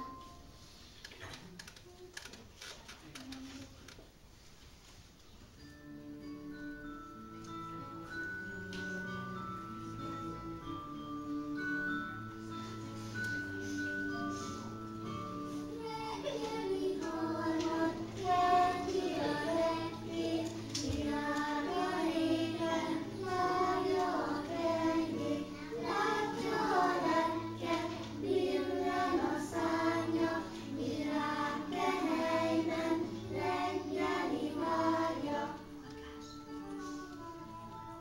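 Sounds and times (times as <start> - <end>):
children singing in unison: 15.5 - 35.8.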